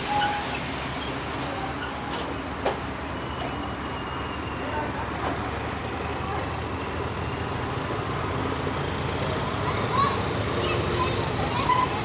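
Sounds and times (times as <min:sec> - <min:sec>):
high-pitched wheel squeal: 0:00.0 - 0:04.8
train coaches rolling on rails: 0:00.0 - 0:12.0.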